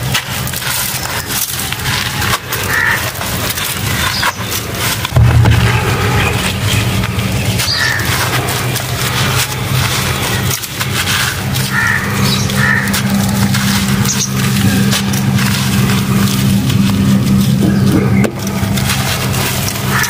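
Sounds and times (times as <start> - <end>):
crumbs pattering on concrete floor: 0.0 - 20.0
low hum: 3.6 - 20.0.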